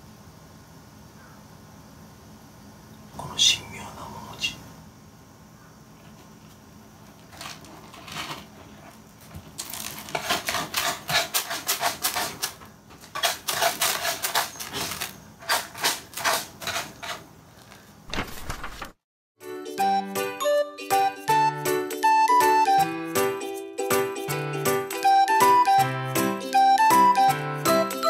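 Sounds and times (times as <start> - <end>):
kitten scratching in cat litter: 7.2 - 17.8
light music: 19.4 - 28.0.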